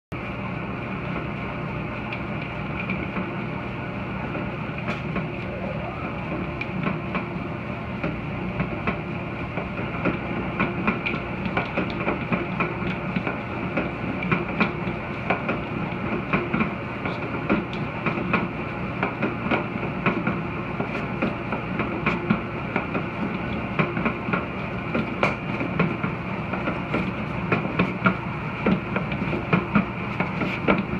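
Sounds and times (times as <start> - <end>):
stand mixer motor hum: 4.6 - 9.5.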